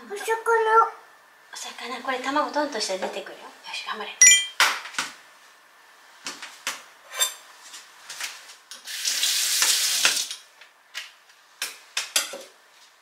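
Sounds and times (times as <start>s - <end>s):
clinks of kitchen items: 4.2s - 4.6s.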